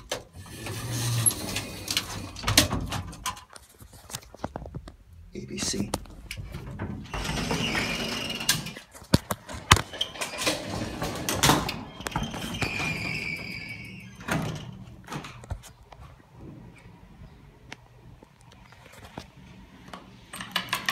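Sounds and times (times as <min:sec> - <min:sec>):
elevator gate sliding and scraping: 0:00.0 - 0:03.5, 0:06.3 - 0:08.9, 0:09.5 - 0:15.5.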